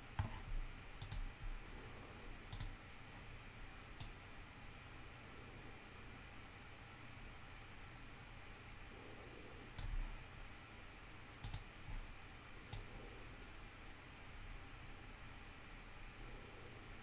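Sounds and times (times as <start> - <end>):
low room hiss: 0.0 - 17.0
computer mouse clicking: 0.2 - 1.3, 2.5 - 2.8, 4.0 - 4.2, 9.7 - 10.0, 11.4 - 11.7, 12.7 - 12.9.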